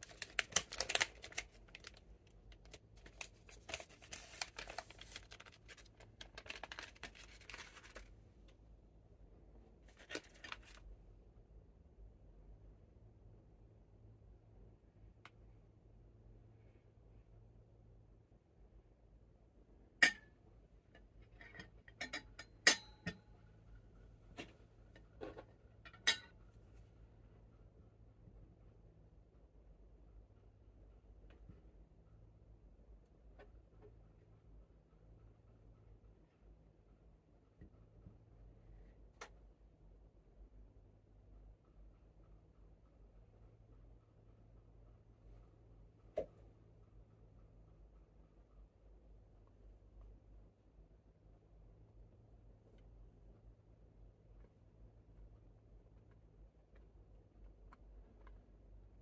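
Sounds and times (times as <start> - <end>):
plastic wrapper crinkling: 0.0 - 8.1, 9.9 - 10.8.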